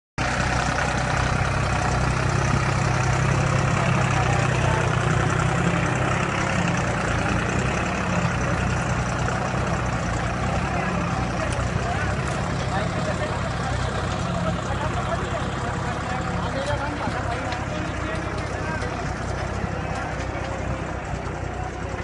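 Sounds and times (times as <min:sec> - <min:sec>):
tractor diesel engine under load: 0:00.2 - 0:22.0.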